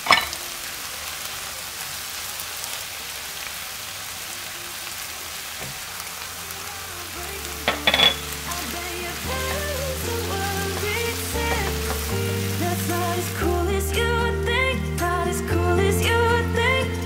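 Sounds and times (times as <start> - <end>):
food sizzling in a frying pan: 0.0 - 13.6
spatulas turning food: 5.2 - 13.5
soft background music: 6.1 - 17.0.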